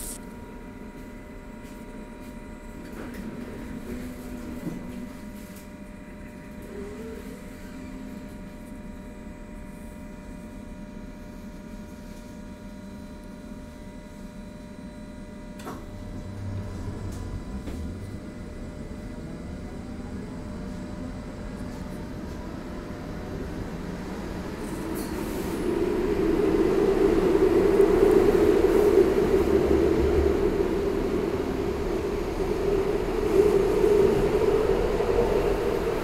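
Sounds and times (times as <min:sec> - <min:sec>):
electrical hum with high whines: 0:00.0 - 0:36.0
train running rumble: 0:14.9 - 0:36.0.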